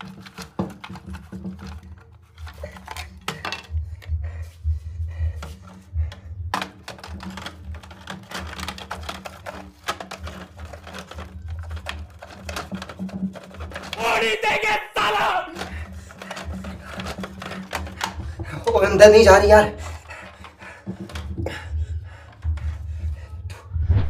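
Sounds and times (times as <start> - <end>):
plastic clicks and taps: 0.0 - 4.1, 5.4 - 14.0, 15.6 - 18.7.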